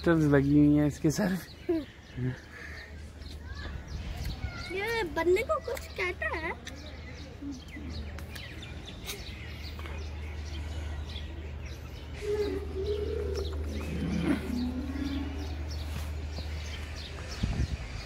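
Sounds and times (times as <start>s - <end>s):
small birds chirping: 0.0s - 18.0s
low wavering call: 12.2s - 15.8s.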